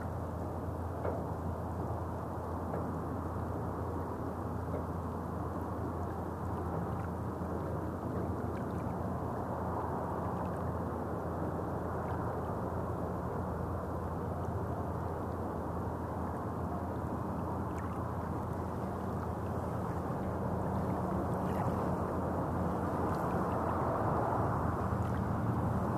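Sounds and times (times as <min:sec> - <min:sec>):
road traffic rumble: 0:18.1 - 0:25.9.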